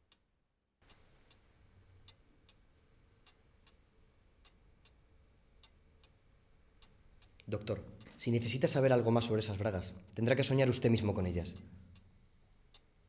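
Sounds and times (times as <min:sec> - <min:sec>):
faint clock ticking: 0:00.1 - 0:08.2, 0:11.4 - 0:13.0.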